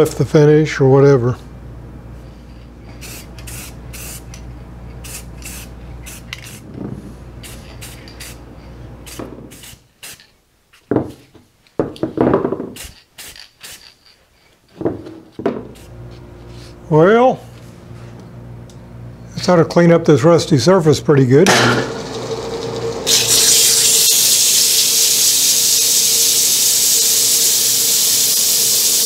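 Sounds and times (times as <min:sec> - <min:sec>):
spray paint can hissing: 0:03.0 - 0:04.3, 0:05.0 - 0:06.6, 0:09.0 - 0:10.3, 0:23.0 - 0:29.0.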